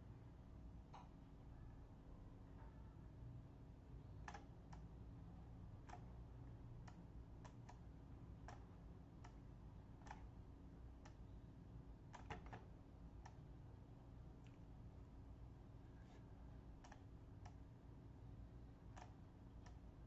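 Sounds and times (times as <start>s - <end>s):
low steady hum: 0.0s - 20.0s
computer mouse clicking: 4.2s - 4.9s, 5.8s - 6.1s, 6.8s - 9.4s, 10.0s - 10.4s, 12.1s - 13.4s, 16.0s - 17.6s, 18.9s - 19.9s.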